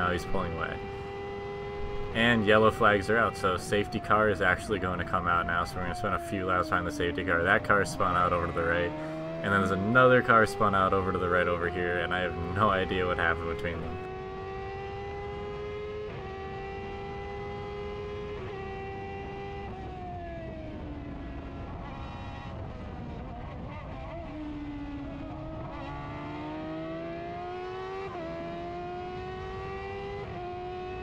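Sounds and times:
gear upshift: 0.0s - 14.2s
race car engine revving: 0.0s - 31.0s.

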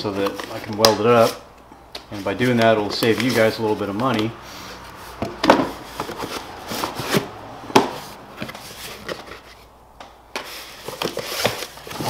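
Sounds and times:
cardboard flaps rustling: 2.0s - 4.3s, 4.9s - 9.7s, 10.3s - 12.0s.

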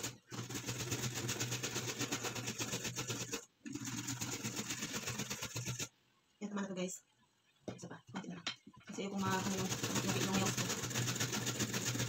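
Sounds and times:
carrot grated on metal grater: 0.0s - 5.9s, 9.2s - 12.0s.

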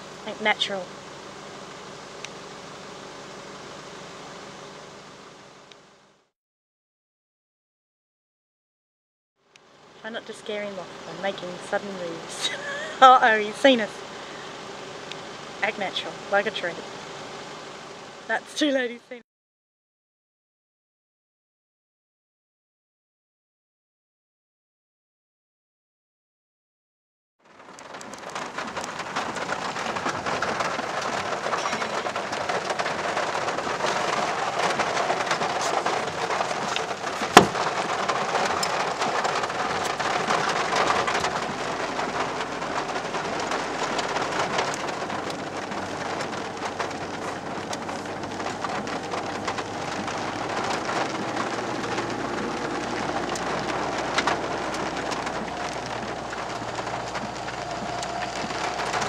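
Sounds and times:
rain on vehicle roof: 0.0s - 5.7s, 9.8s - 19.0s, 27.4s - 59.0s
low vehicle rumble: 9.8s - 18.9s, 27.4s - 59.0s.

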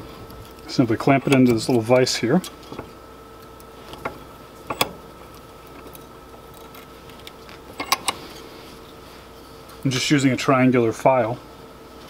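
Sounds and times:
metal clicks of bench vise: 3.9s - 5.0s, 7.8s - 8.2s.

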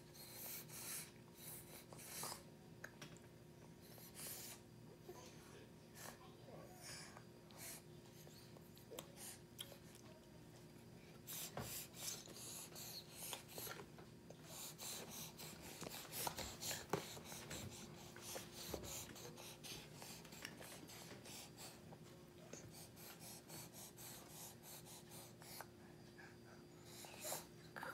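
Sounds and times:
faint steady hum: 0.0s - 27.9s.

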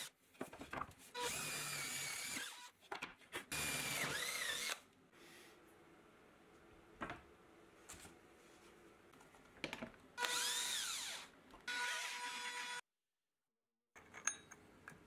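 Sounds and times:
cordless drill boring into wood: 1.2s - 2.7s, 3.5s - 4.8s, 10.2s - 12.8s.

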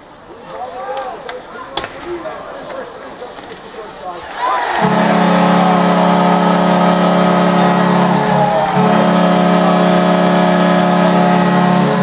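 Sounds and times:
arena goal horn: 4.4s - 12.0s.

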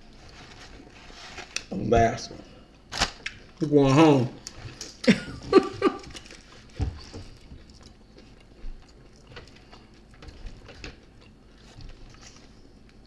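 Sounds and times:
clicks and knocks handling food: 4.4s - 13.0s
biting and chewing food: 5.9s - 13.0s.

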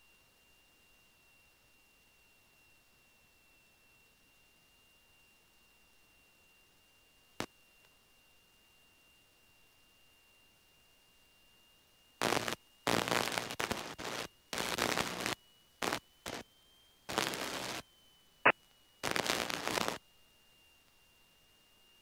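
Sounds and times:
faint high whine: 0.0s - 22.0s
radio static bursts: 12.2s - 16.4s, 17.1s - 17.8s, 19.0s - 20.0s.

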